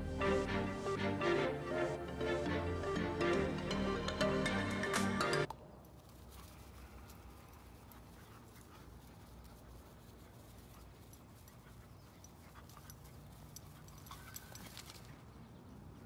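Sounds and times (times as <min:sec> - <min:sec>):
low outdoor hiss: 0:05.6 - 0:16.0.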